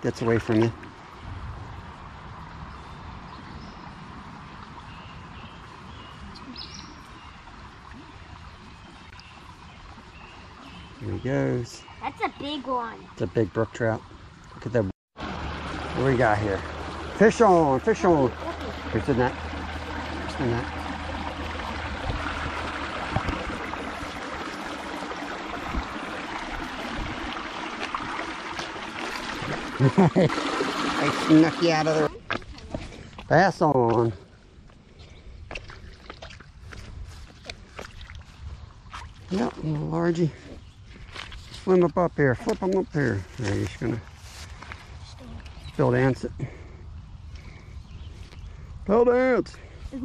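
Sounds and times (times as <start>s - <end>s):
creek water running: 0.0s - 50.0s.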